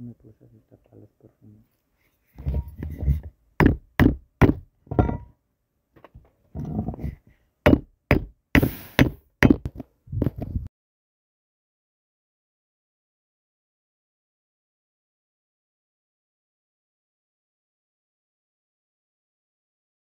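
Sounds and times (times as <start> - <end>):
hammer knocking: 2.4 - 5.3, 7.7 - 9.8.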